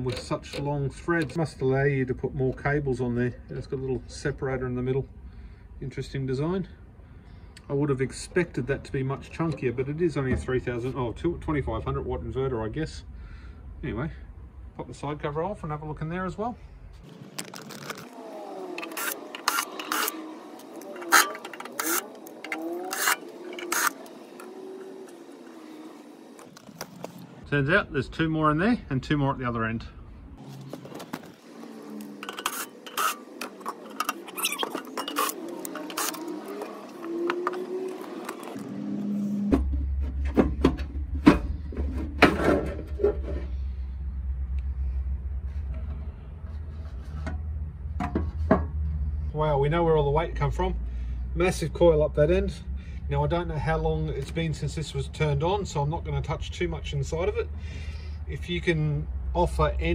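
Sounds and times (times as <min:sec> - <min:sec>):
cordless drill whirring: 0:18.0 - 0:26.6.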